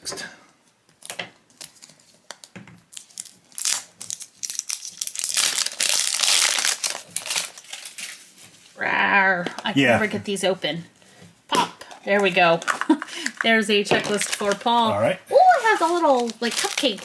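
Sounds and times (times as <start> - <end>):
plastic shrink wrap crinkling: 0.9 - 8.8, 12.2 - 17.0.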